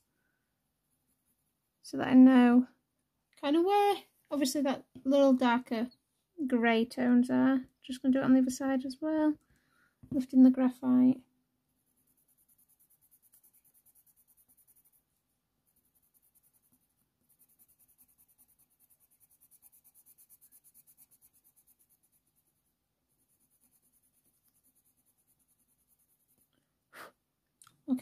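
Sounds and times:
pencil scratching on paper: 11.8s - 26.6s.

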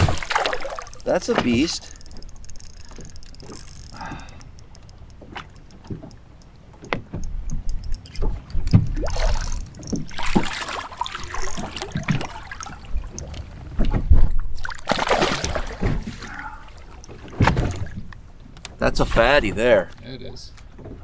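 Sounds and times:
water splashing against boat hull: 0.0s - 2.2s, 5.1s - 18.1s
fish thrashing and splashing: 0.0s - 6.1s, 8.0s - 13.4s, 14.6s - 18.0s.

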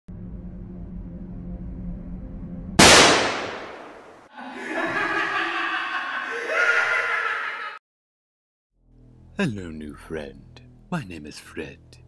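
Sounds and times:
dark droning horror music: 0.1s - 2.8s
loud crash: 2.8s - 4.2s.

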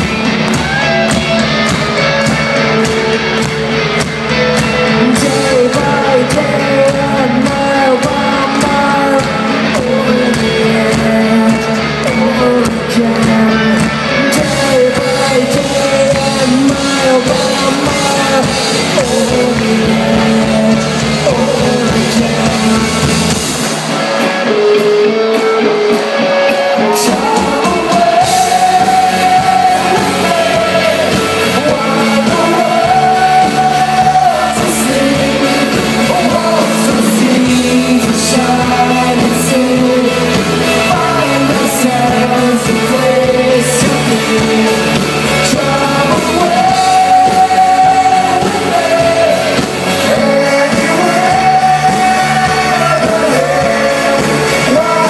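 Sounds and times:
bass guitar: 0.0s - 55.0s
drums: 0.0s - 55.0s
electric guitars: 0.0s - 55.0s
person singing lead vocal: 0.0s - 55.0s.

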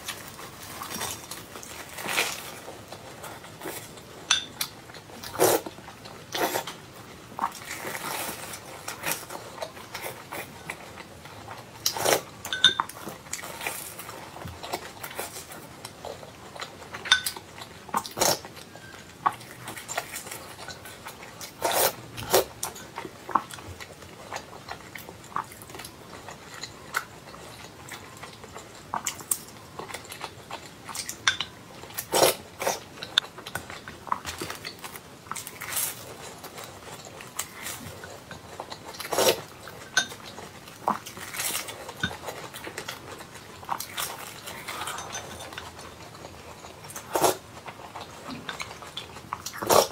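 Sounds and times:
wet chewing and mouth sounds: 0.0s - 49.9s.

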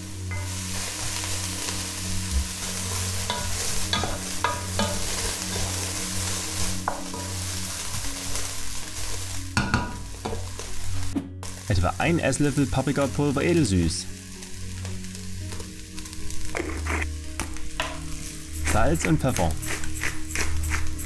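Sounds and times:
food sizzling in oil: 0.0s - 21.0s
wooden spoon knocking on pot: 9.6s - 10.5s.

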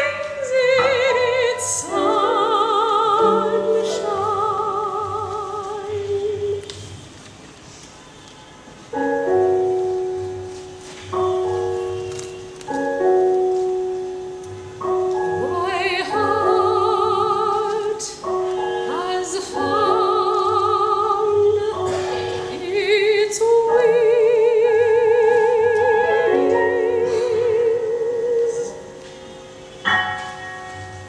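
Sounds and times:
woman singing operatically: 0.0s - 6.7s, 15.4s - 28.8s
piano chords: 0.0s - 7.9s, 8.5s - 31.0s.

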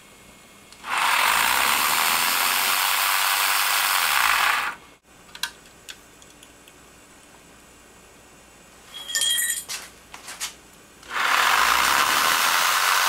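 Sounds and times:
rotary tool rattling whirr: 0.8s - 4.8s.

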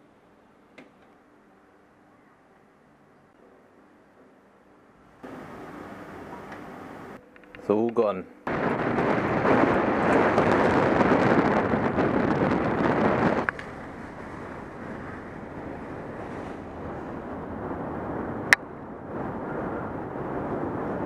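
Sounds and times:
wind buffeting microphone: 8.5s - 21.0s.

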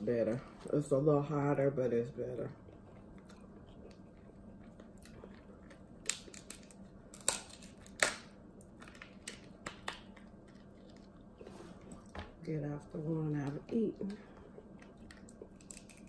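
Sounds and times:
crab shell cracking by hand: 4.8s - 11.2s, 14.8s - 16.0s.

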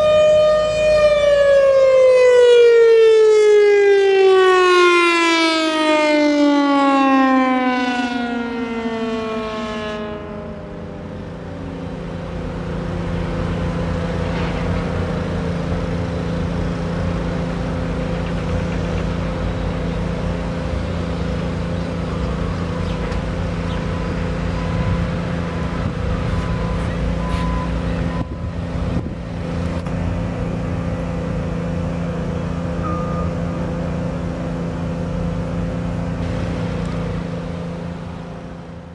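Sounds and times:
steady mechanical hum: 8.3s - 38.9s.

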